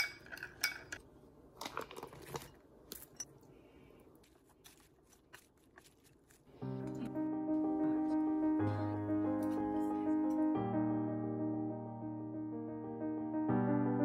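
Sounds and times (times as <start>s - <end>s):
lettuce leaves rustling: 4.1s - 6.7s.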